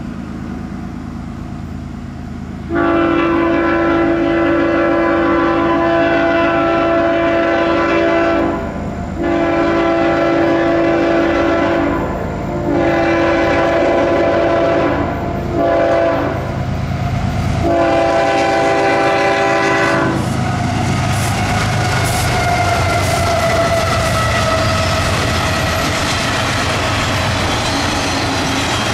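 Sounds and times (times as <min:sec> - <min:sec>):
train engines and wheels rumbling: 0:00.0 - 0:28.9
locomotive air horn blasts: 0:02.7 - 0:16.6, 0:17.6 - 0:26.3.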